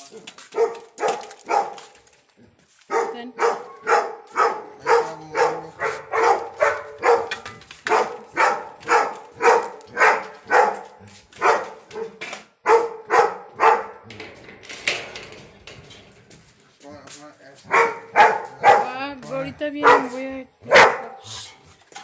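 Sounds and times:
dog barking: 0.1s - 1.9s, 2.9s - 14.0s, 17.6s - 19.0s, 19.8s - 21.2s.

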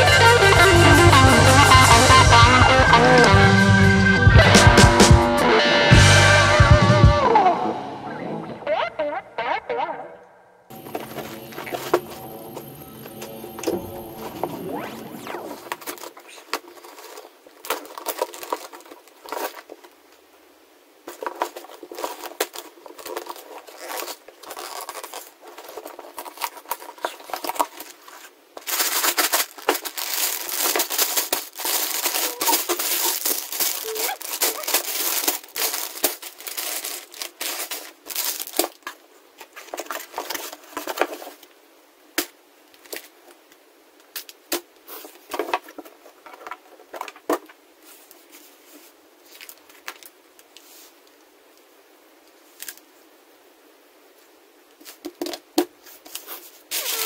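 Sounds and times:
plastic bags of bricks crinkling: 15.6s - 20.0s, 21.0s - 41.5s.

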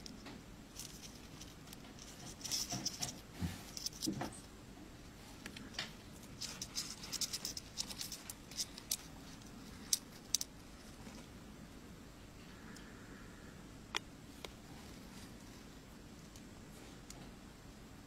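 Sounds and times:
insects scrabbling and scratching: 0.0s - 4.5s, 5.4s - 11.4s.

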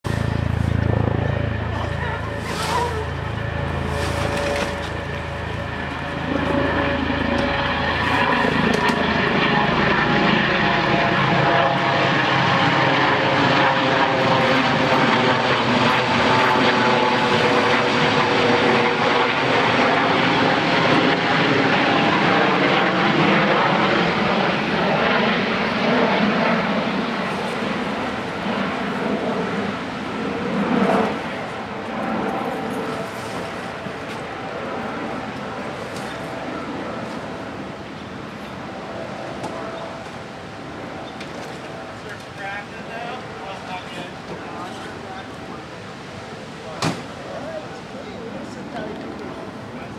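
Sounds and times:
helicopter flying past: 0.1s - 49.9s.

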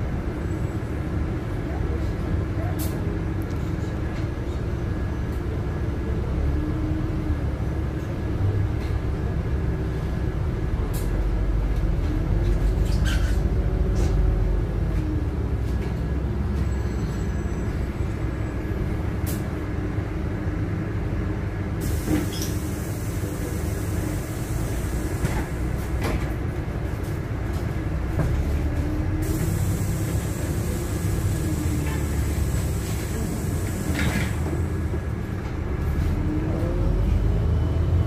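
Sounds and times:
bus drivetrain and road rumble: 0.0s - 38.0s
whine of bus: 0.0s - 38.0s
air hiss: 21.8s - 25.5s, 29.2s - 34.5s.

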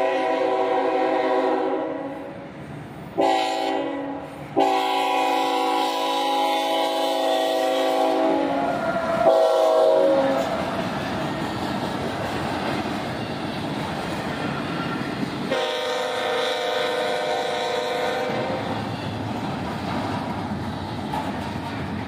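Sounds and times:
locomotive horn blasts: 0.0s - 2.3s, 3.2s - 10.6s, 15.5s - 19.1s
train running on rails: 0.0s - 22.0s.

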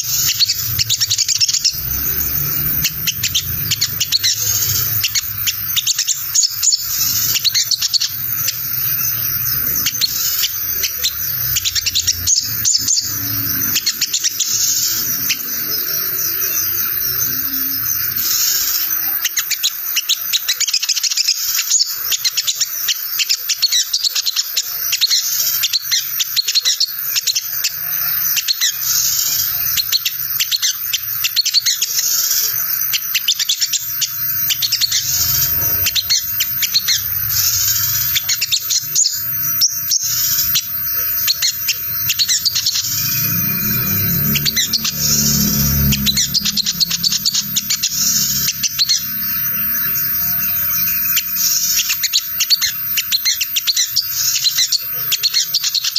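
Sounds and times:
sunbird high-pitched chattering: 0.0s - 55.9s
low rumble: 42.2s - 49.8s.

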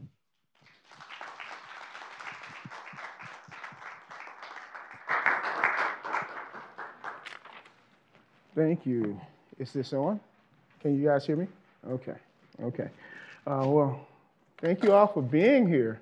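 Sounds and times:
audience applauding: 0.6s - 7.8s.

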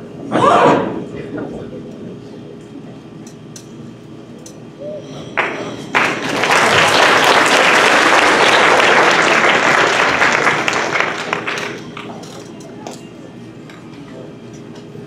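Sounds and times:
audience applauding: 5.4s - 12.2s.

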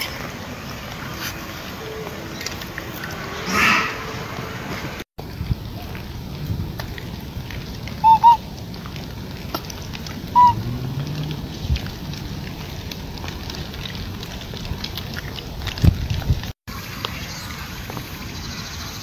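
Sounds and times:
macaque calls: 8.0s - 8.4s, 10.4s - 10.6s.

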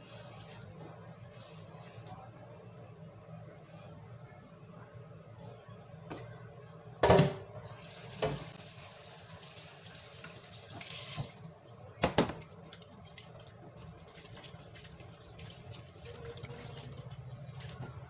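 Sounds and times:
tap water running into sink: 7.8s - 11.4s.

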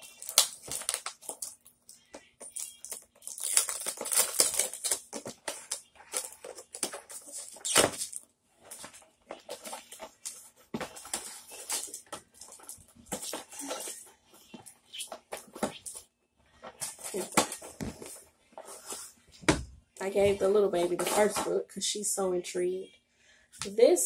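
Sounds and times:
books rustling and tapping: 16.6s - 21.6s.

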